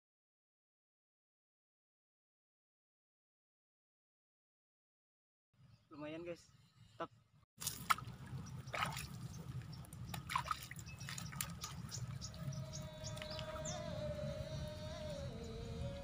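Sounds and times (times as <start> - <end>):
water dripping and trickling: 7.6 - 13.8
low steady rumble: 7.8 - 16.0
background music: 12.2 - 16.0.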